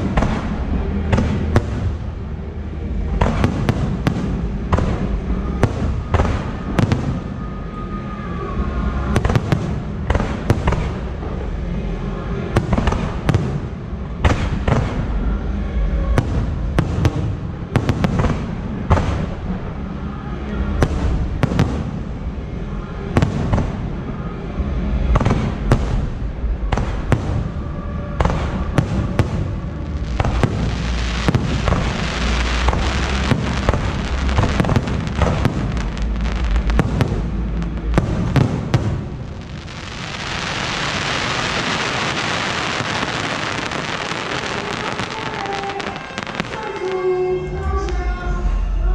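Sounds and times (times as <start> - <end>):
fireworks bursting with sharp bangs: 0.0 - 2.4, 3.0 - 7.7, 9.1 - 11.6, 12.5 - 15.3, 16.1 - 19.7, 20.7 - 22.4, 23.1 - 24.1, 25.1 - 48.0
low rumble: 0.0 - 48.9
fireworks crackling hiss: 28.2 - 47.3.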